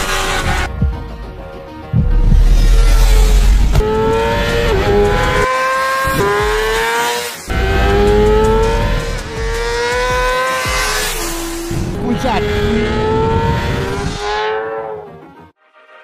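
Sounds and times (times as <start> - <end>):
motorcycle engine revving hard: 3.1 - 15.0.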